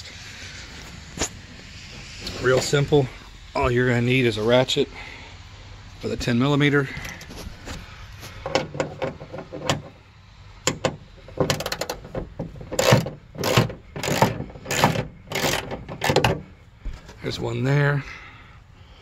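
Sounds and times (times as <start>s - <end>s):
ratchet clicking: 10.6s - 16.4s.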